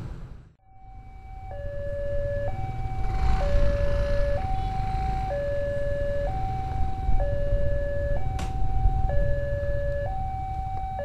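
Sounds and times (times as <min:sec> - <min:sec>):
two-tone crossing alarm: 0:00.6 - 0:11.0.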